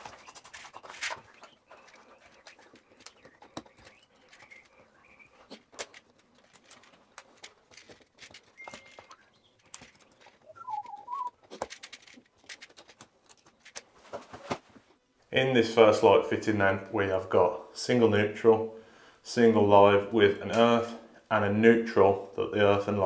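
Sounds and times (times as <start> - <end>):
wavering whistle-like call: 10.5 - 11.3.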